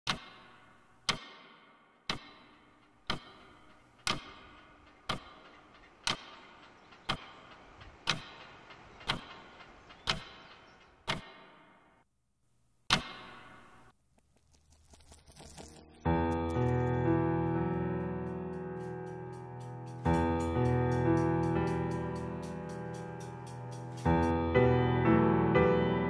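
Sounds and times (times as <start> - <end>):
wall clock ticking: 0.1 - 11.6.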